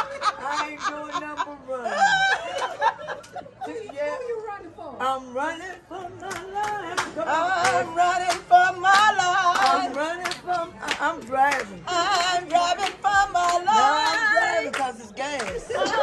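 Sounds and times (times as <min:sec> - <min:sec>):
hand clapping: 0:06.2 - 0:15.7.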